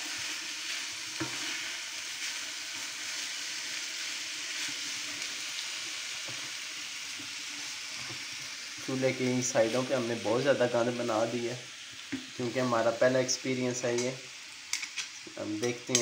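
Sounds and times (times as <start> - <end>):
rice sizzling in frying pan: 0.0 - 16.0
metal spoon scraping pan: 14.8 - 16.0.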